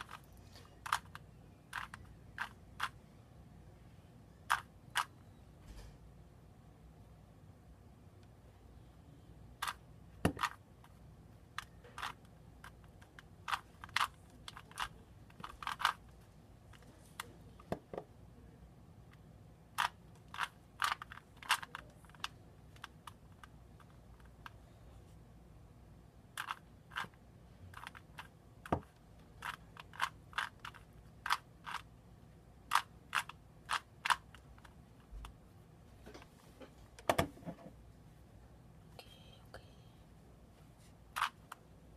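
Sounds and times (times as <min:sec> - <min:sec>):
puzzle cube clicking: 0:00.0 - 0:03.0, 0:09.6 - 0:16.1, 0:19.8 - 0:24.6, 0:26.4 - 0:31.9, 0:32.6 - 0:35.4, 0:41.1 - 0:41.6.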